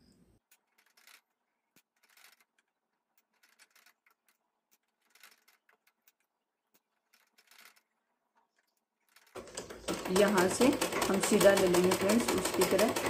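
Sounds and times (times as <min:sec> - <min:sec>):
cloth rustling and clicking: 0:00.4 - 0:09.4.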